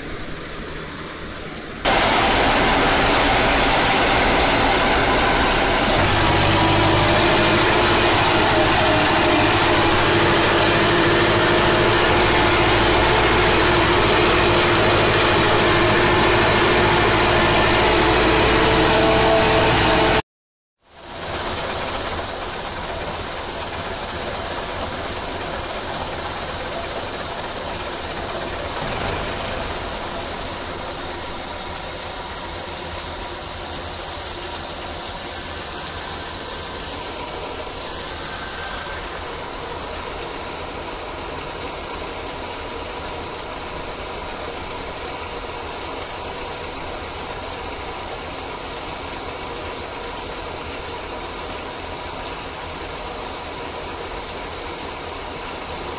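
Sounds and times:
combine harvester drone: 0.0s - 20.2s, 20.9s - 55.9s
grain pouring into trailer: 1.9s - 20.2s, 21.0s - 55.9s.

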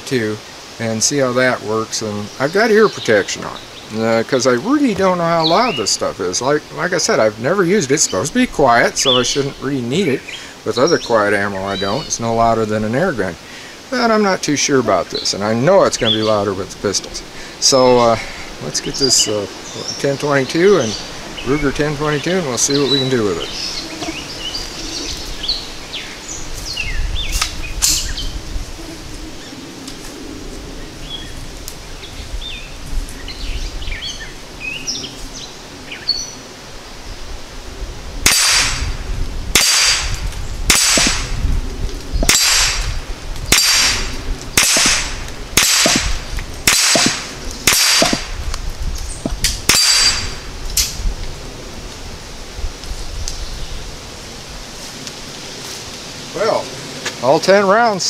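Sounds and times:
birds chirping: 0.0s - 37.4s, 39.6s - 50.5s
rifle shots: 38.2s - 38.9s, 39.5s - 41.4s, 42.2s - 42.9s, 43.5s - 48.4s, 49.7s - 50.4s.

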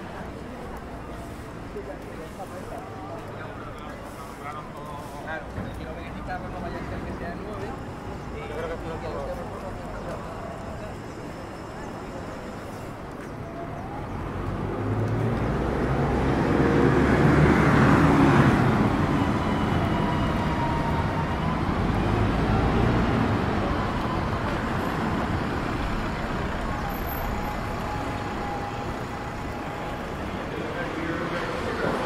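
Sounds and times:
traffic: 0.0s - 32.0s
vehicle passing close: 14.4s - 32.0s.

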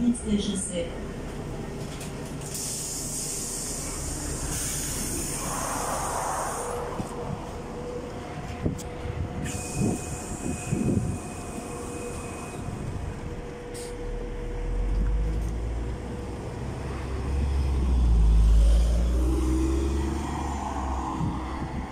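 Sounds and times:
bus engine rumbling: 0.0s - 21.9s
bus doors hissing shut: 2.4s - 7.0s, 9.4s - 13.0s, 13.7s - 14.0s.

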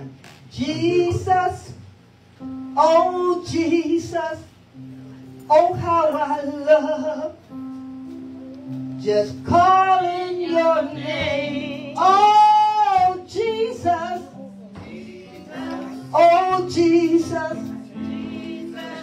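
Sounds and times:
instrumental backing of held notes: 4.7s - 19.0s
woman singing: 9.0s - 19.0s.

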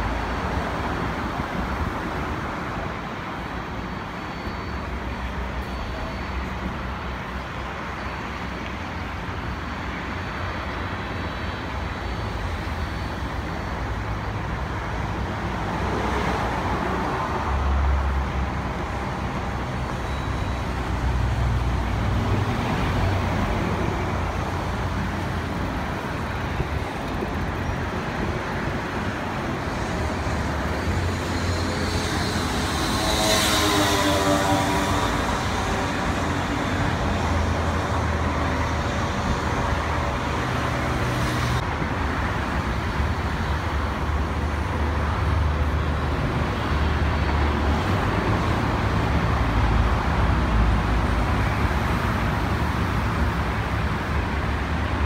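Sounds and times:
distant jet engine noise: 0.0s - 55.0s
road traffic rumble: 0.0s - 55.0s
vehicle passing with whoosh: 29.6s - 41.6s.

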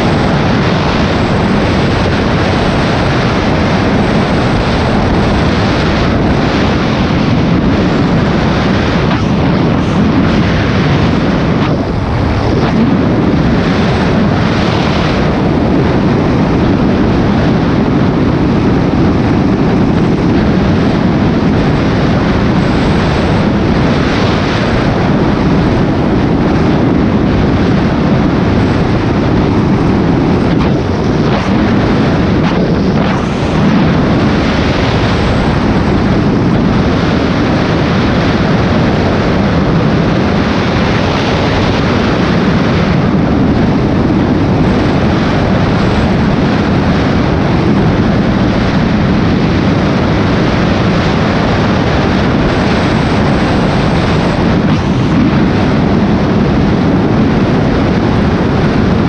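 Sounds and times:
motorcycle engine running: 0.0s - 36.8s
wind rush on microphone: 0.0s - 59.0s.

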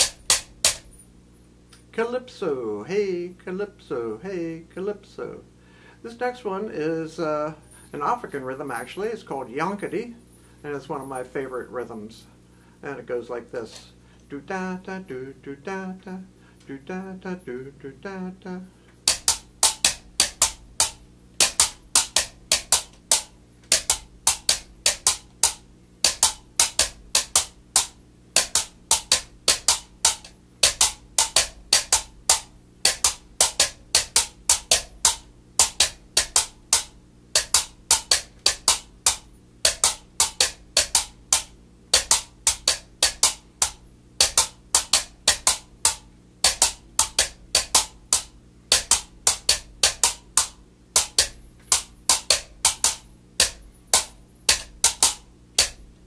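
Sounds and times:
bamboo tubes clacking: 0.0s - 0.9s, 19.1s - 55.8s.

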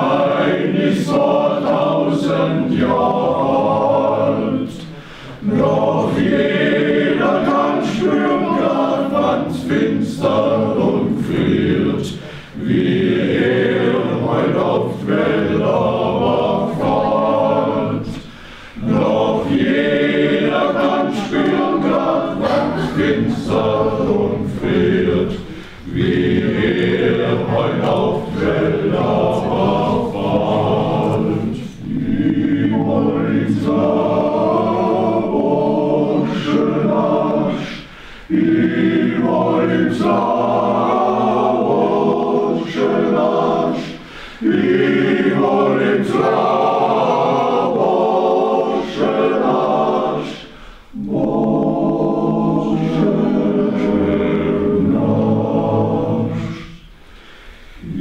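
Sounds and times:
men's choir singing a cappella: 0.0s - 58.0s.

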